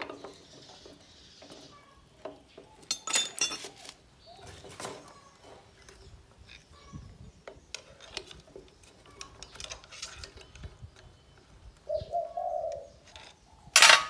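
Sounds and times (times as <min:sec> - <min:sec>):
metallic clinks and scrapes: 0:02.8 - 0:04.0, 0:09.0 - 0:10.6, 0:13.1 - 0:14.0.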